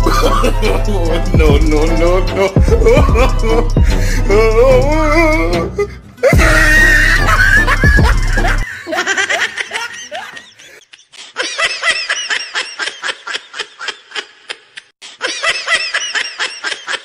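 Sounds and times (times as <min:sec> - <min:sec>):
high-pitched laughter: 0:00.0 - 0:01.2, 0:06.2 - 0:17.0.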